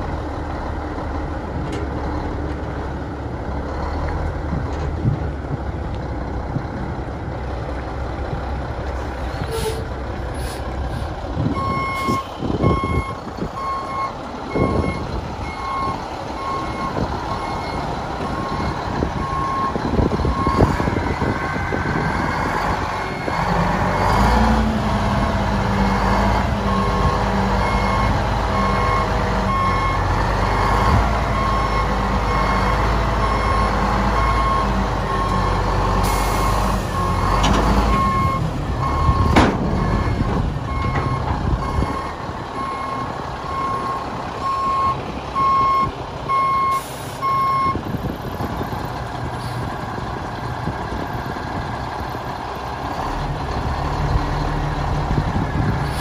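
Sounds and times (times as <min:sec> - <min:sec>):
diesel truck engine running: 0:00.0 - 0:56.0
clunks: 0:01.6 - 0:02.7, 0:37.2 - 0:43.0.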